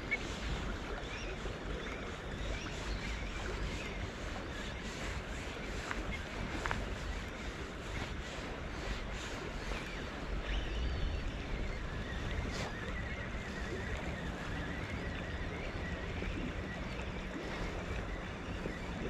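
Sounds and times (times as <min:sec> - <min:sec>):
river water: 0:00.0 - 0:19.0
wind on microphone: 0:00.0 - 0:19.0.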